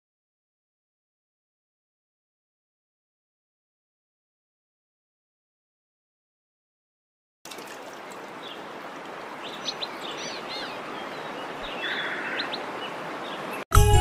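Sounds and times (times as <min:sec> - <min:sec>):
birds chirping: 0:07.5 - 0:13.6
waterfall rushing: 0:07.5 - 0:13.6
loud music: 0:13.7 - 0:14.0.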